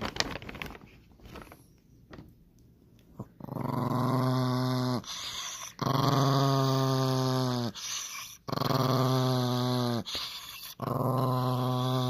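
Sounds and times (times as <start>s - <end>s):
small dog growling: 3.2s - 12.0s.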